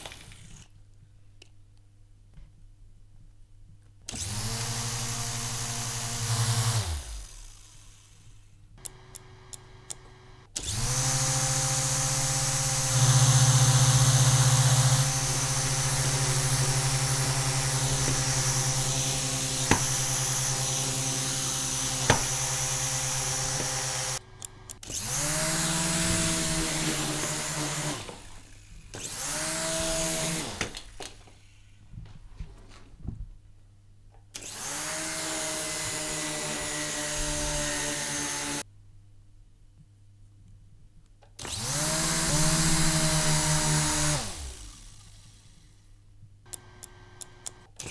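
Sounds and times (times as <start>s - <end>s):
toy helicopter motors whining: 4.1s - 8.5s, 10.5s - 31.2s, 41.4s - 45.8s.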